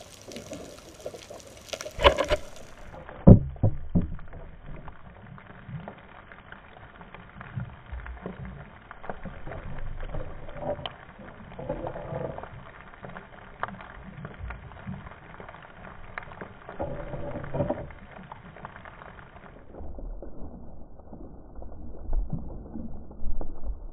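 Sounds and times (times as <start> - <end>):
muffled underwater rumble: 0.0 - 23.9
sharp clicks and knocks: 1.7 - 5.0.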